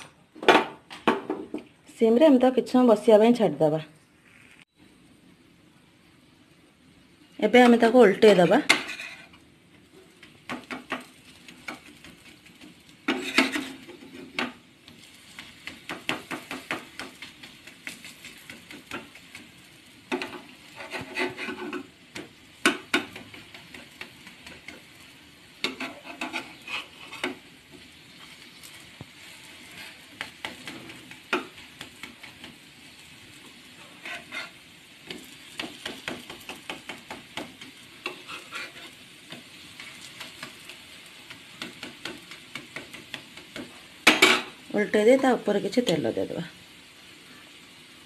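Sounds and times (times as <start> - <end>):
faint sizzling in oil: 1.9 - 48.0
metal spatula scraping a pan: 8.3 - 9.4, 10.6 - 22.0, 22.8 - 27.5, 28.1 - 44.6.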